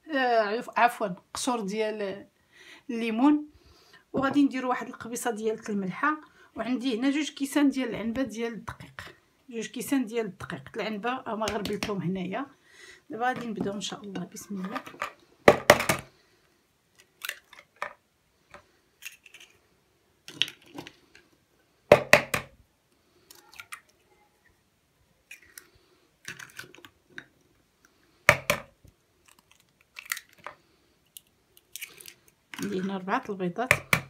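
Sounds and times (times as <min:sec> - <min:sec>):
eggs cracking on plastic bowl: 0:11.4 - 0:12.0, 0:17.0 - 0:18.0, 0:20.2 - 0:21.2, 0:25.3 - 0:27.3, 0:28.3 - 0:32.9, 0:33.7 - 0:34.0
eggshell clicks and crunches: 0:29.2 - 0:30.5, 0:31.1 - 0:32.8.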